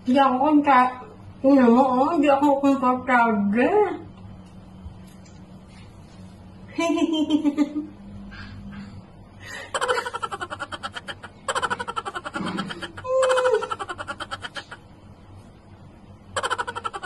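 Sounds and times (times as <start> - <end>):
woman laughing: 6.7 - 7.9, 9.5 - 14.8, 16.4 - 17.0.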